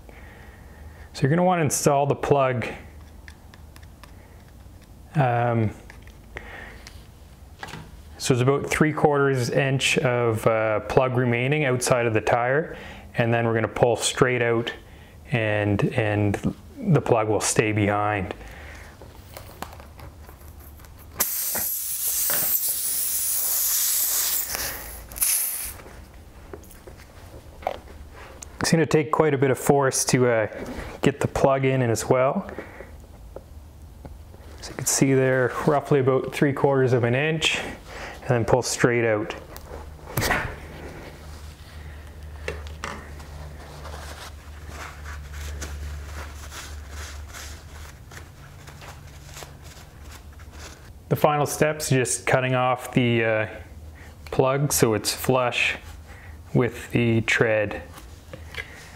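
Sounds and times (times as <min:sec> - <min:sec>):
steady low hum: 0:00.0 - 0:58.9
air hissing from tyre: 0:21.2 - 0:25.8.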